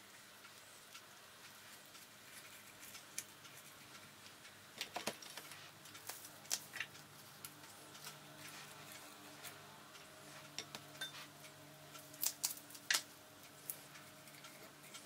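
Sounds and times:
soft rustles and clicks of handling: 1.4s - 11.4s.

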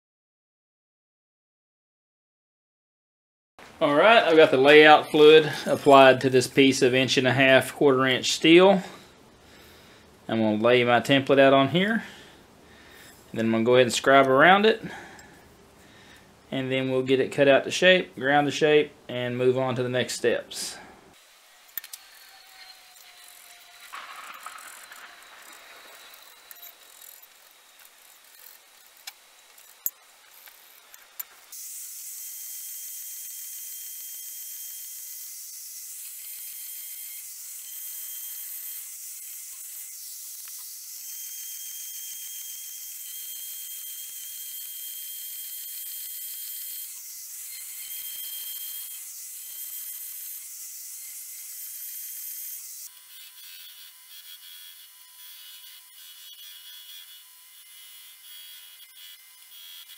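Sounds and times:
band saw cutting steel: 21.1s - 59.9s.

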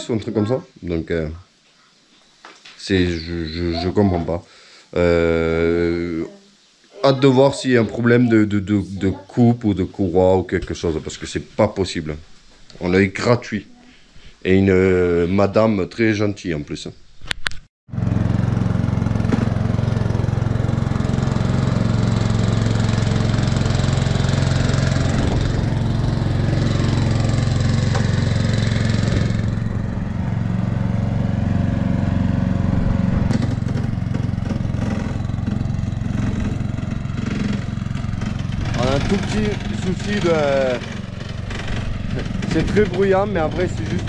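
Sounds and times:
lawn mower engine running: 17.9s - 44.0s
mower deck ringing: 18.2s - 32.6s, 33.3s - 44.0s.

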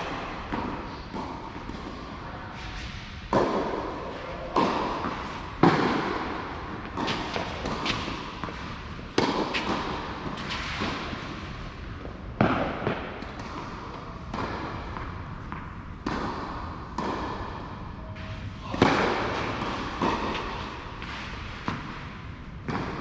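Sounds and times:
racquets striking ball: 0.0s - 2.2s, 3.3s - 17.6s, 18.7s - 23.0s
ball bouncing: 4.5s - 11.1s.

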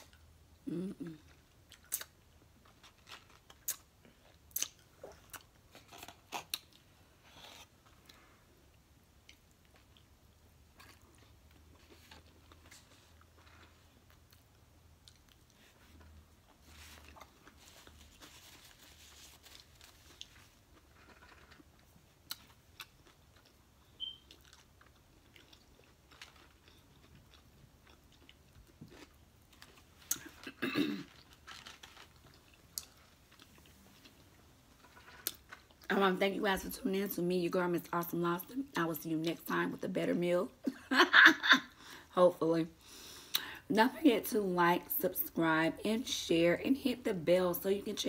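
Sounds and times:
chewing with mouth clicks: 19.9s - 30.5s.

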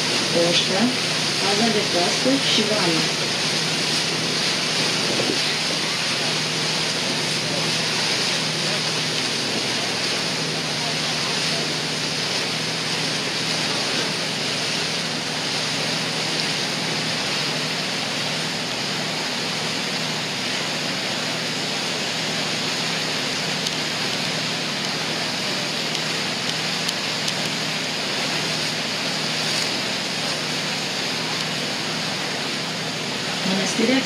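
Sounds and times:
low engine drone: 0.0s - 34.0s
steady rushing noise: 0.0s - 34.0s.

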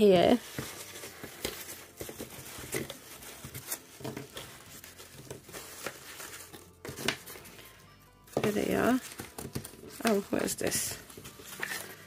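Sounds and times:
packing peanuts rustling: 0.0s - 12.0s.

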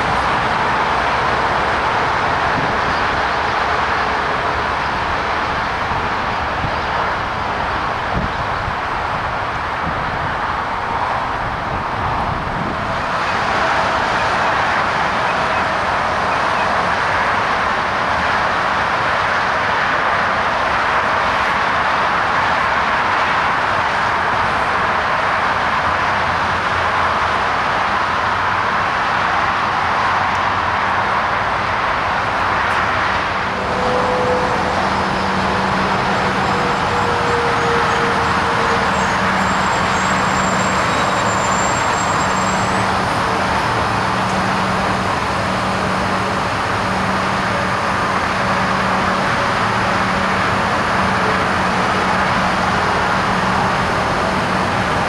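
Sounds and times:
electric train humming and whining: 0.0s - 55.0s
road traffic rushing: 0.0s - 55.0s
faint high squeal: 36.4s - 43.0s.

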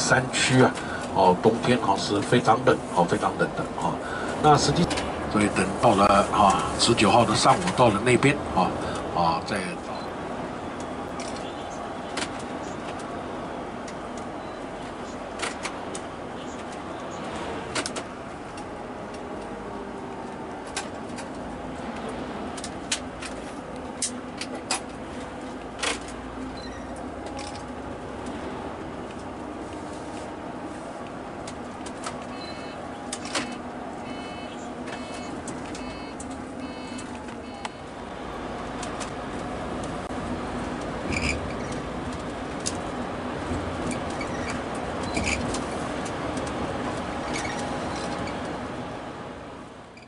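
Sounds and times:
bus engine hum: 0.0s - 50.0s
road noise: 0.0s - 50.0s.

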